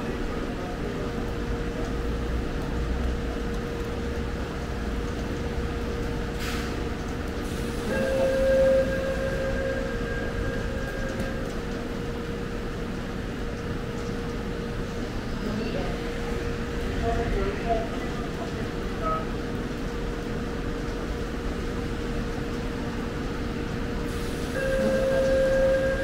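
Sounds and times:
subway train rumbling: 0.0 - 26.0
constant hum: 0.1 - 26.0
steady high tone: 7.9 - 11.4, 24.6 - 26.0.

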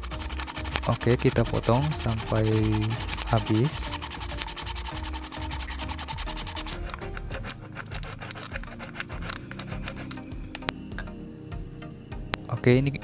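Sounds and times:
hacksaw sawing plastic: 0.0 - 10.3
background music: 0.0 - 13.0.

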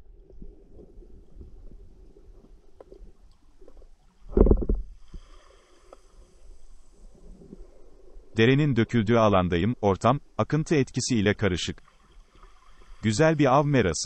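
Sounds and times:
underwater rumble of moving water: 0.0 - 14.0
faint underwater clicks: 0.1 - 8.4, 11.6 - 13.6.

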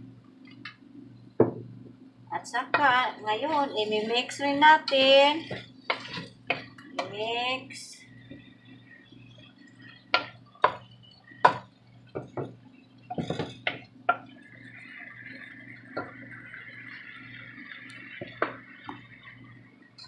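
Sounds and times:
low steady hum: 0.0 - 20.0
wooden spatula knocking on pot: 10.1 - 10.8, 11.4 - 14.2.

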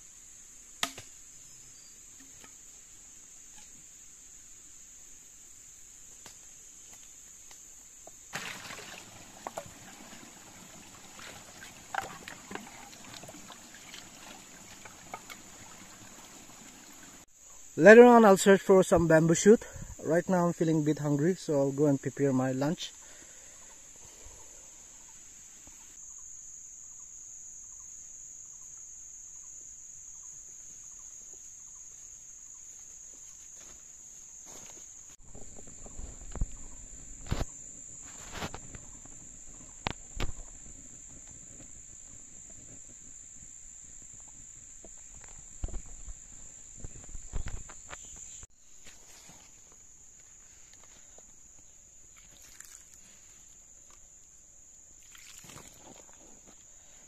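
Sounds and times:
insects droning: 0.0 - 57.0.

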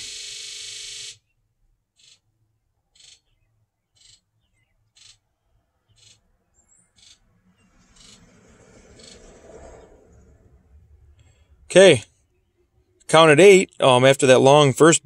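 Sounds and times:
fuel injectors buzzing: 0.0 - 1.2
short injector solenoid buzzes: 0.0 - 1.2.

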